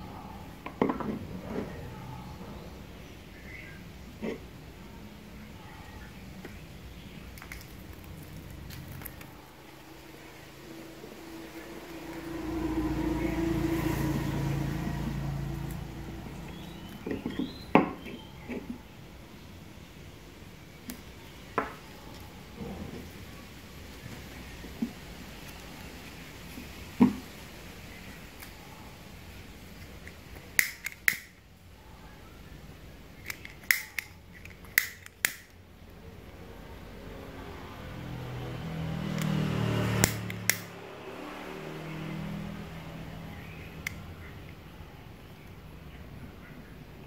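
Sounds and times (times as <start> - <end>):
vehicle engine passing: 7.2 - 19.5, 36.0 - 45.2.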